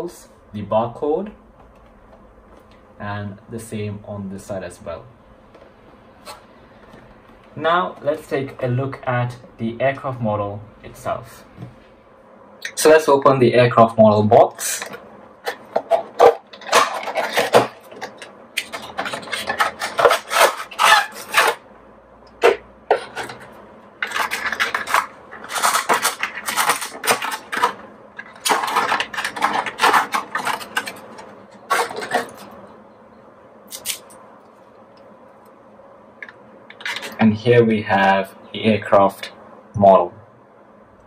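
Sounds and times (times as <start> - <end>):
plastic tray crackling: 14.7 - 21.6, 22.4 - 32.6.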